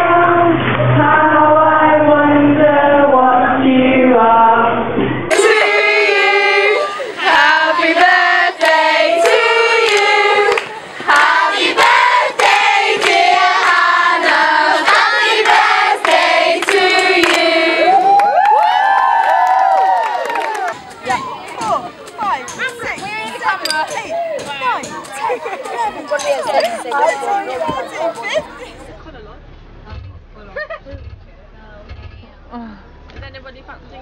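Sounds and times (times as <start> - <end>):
children singing in unison: 0.0 - 18.0.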